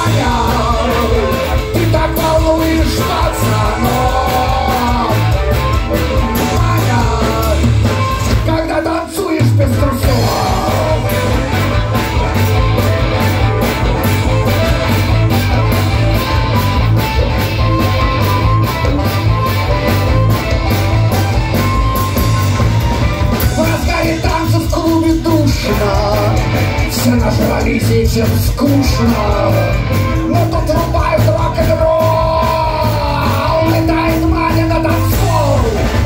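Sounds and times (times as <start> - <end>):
harmonica: 0.0 - 8.4, 10.0 - 25.0
bass: 0.0 - 36.0
drums beat: 0.0 - 36.0
electric guitar: 0.0 - 36.0.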